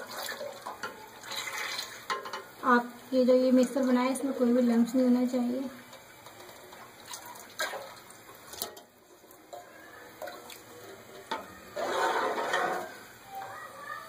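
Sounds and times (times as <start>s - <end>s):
batter being stirred: 3.6s - 13.0s.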